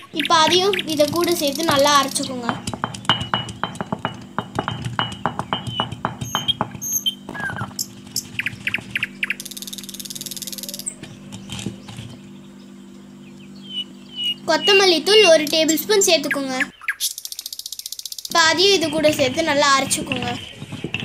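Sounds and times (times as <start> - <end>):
high buzzing trill: 0.0 - 16.0
birds chirping: 0.0 - 21.0
grinding stone gritty knocks: 0.3 - 9.5, 11.0 - 12.2, 18.3 - 21.0.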